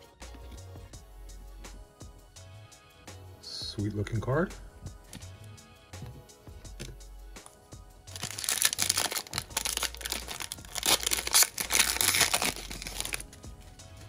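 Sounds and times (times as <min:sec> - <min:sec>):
quiet background music: 0:00.0 - 0:14.0
foil pack crinkling and tearing: 0:08.1 - 0:13.3.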